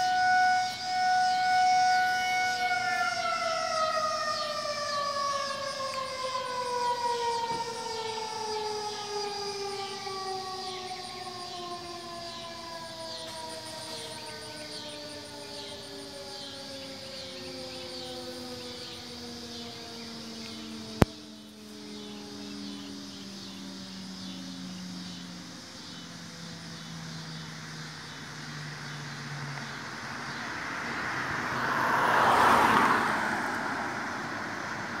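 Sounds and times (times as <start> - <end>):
siren winding down: 0.0 - 25.6.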